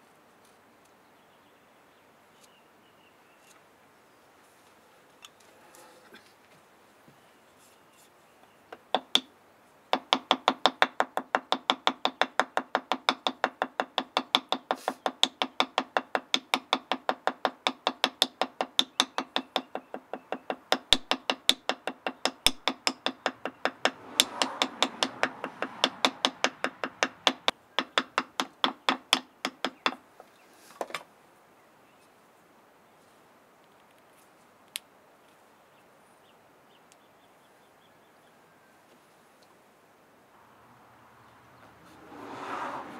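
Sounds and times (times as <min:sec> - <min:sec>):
wooden mallet tapping on bark: 0:08.7 - 0:09.3, 0:09.9 - 0:30.1.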